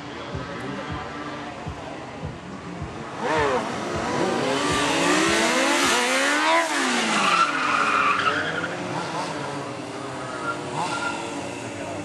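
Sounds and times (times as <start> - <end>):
motorcycle engine revving: 0.0 - 12.0
tyre squeal: 10.2 - 11.4.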